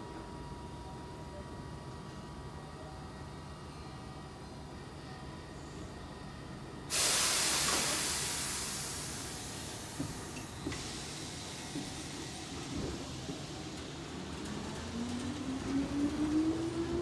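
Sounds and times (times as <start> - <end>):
train venting compressed air: 6.9 - 11.8.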